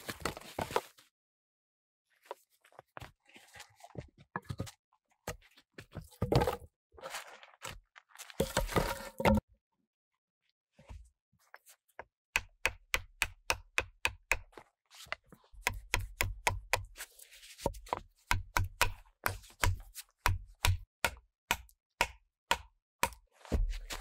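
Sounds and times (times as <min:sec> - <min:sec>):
axe chopping wood: 0:18.3 - 0:23.8.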